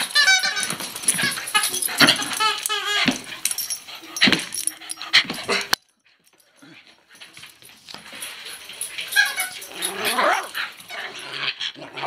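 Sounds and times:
squeak toy squeaking: 0.0s - 3.3s, 9.2s - 10.4s.

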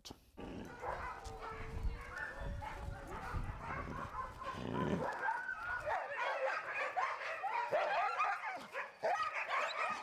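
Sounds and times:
huskies barking and yelping: 0.5s - 10.0s.

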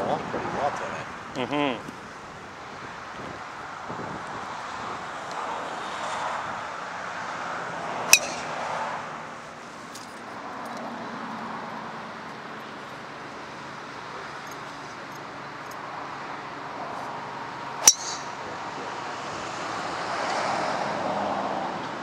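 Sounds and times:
steady outdoor hiss: 0.0s - 22.0s
golf club striking ball: 8.1s - 8.6s, 17.8s - 18.4s.

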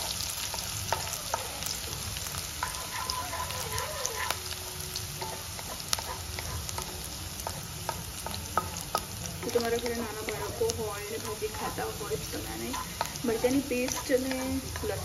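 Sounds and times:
food sizzling in hot oil: 0.0s - 15.0s.

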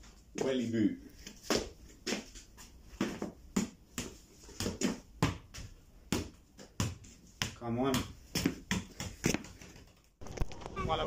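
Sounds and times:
football thuds on feet: 1.4s - 9.9s.

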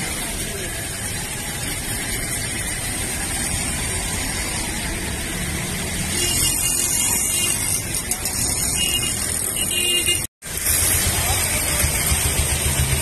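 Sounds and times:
rain and floodwater: 0.0s - 7.2s
motorcycle engines running: 0.0s - 13.0s.

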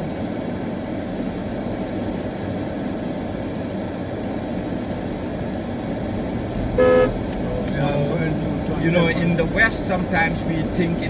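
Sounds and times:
car engine and road noise: 0.0s - 11.0s.

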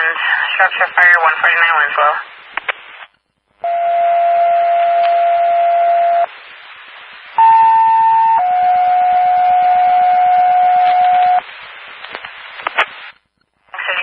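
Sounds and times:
radio hiss: 0.0s - 3.7s, 6.0s - 7.5s, 11.0s - 14.0s.

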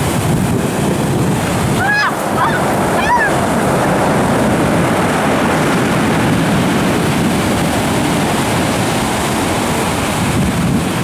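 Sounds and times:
waves breaking on pebble beach: 0.0s - 11.0s
wind buffeting microphone: 0.0s - 11.0s.

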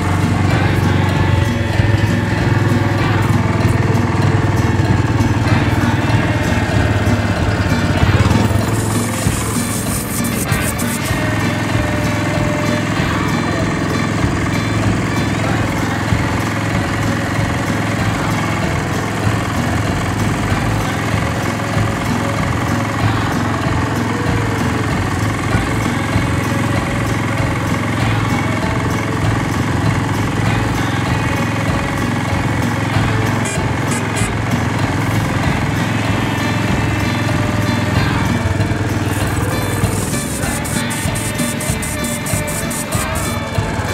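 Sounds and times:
small vehicle engine running: 0.0s - 43.9s.

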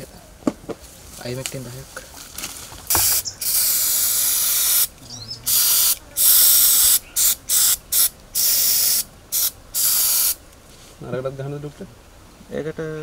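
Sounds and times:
aerosol spray hissing: 2.9s - 10.4s.

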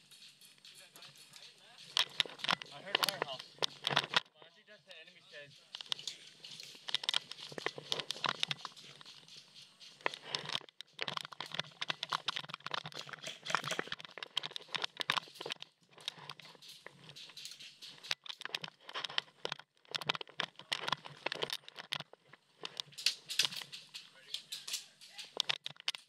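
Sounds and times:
footsteps on dry dirt: 0.0s - 4.2s, 5.2s - 13.9s
gear brushing against camera: 0.0s - 4.2s, 4.8s - 25.5s.

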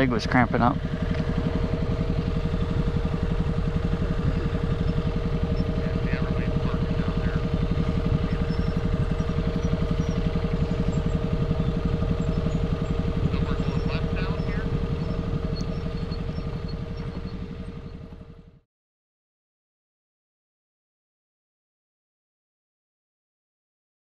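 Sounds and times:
motorcycle engine running: 0.0s - 18.6s.

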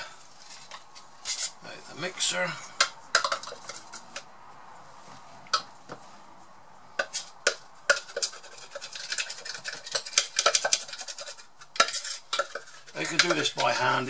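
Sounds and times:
utensil scraping blender jar: 2.8s - 4.2s, 7.0s - 14.0s.

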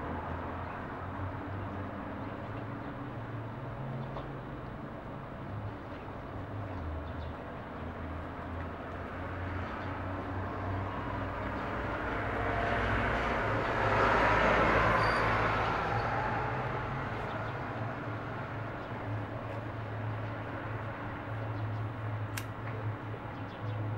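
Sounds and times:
vehicle passing: 10.8s - 21.0s.

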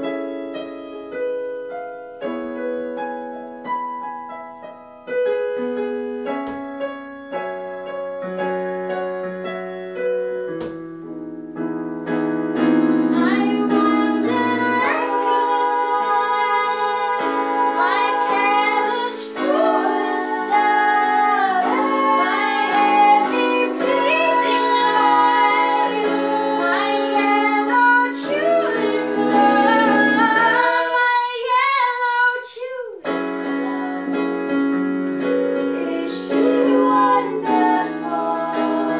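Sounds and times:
electric keyboard chords: 0.0s - 31.4s, 33.0s - 38.9s
women singing: 13.1s - 34.5s, 35.7s - 38.9s.

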